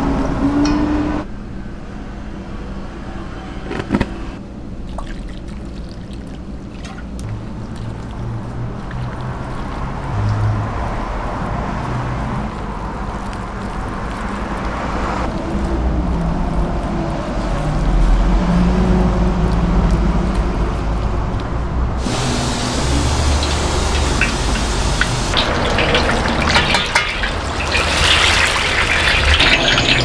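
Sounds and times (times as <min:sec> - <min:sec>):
hand mixing batter in bowl: 0:05.1 - 0:10.1, 0:10.7 - 0:30.0
hot oil sizzling: 0:22.0 - 0:30.0.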